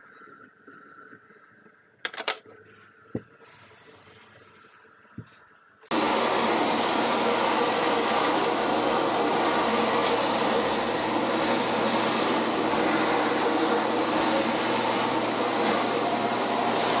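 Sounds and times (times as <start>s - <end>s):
vacuum cleaner running: 5.9s - 17.0s.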